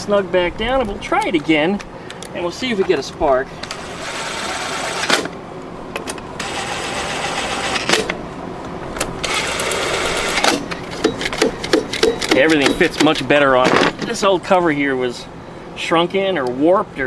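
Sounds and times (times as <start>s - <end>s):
power driver whirring: 3.6s - 13.1s.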